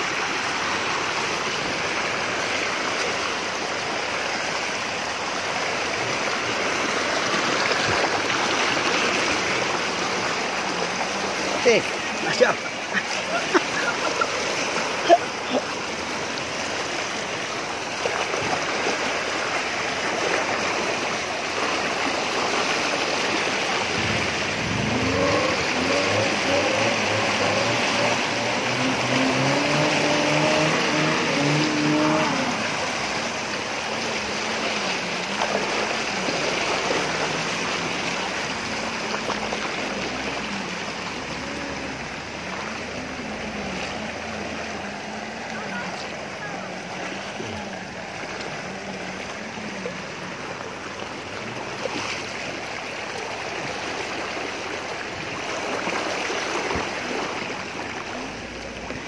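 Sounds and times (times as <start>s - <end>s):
floodwater rushing and churning: 0.0s - 59.0s
vehicle engine: 23.5s - 52.6s.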